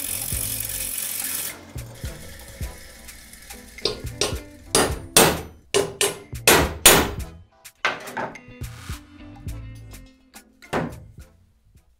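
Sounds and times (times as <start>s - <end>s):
screwdriver scraping metal tube: 0.0s - 5.2s.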